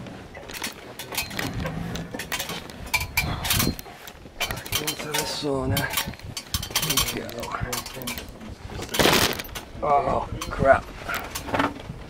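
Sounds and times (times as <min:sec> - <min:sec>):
metal zip pulls clinking: 0:00.5 - 0:09.6.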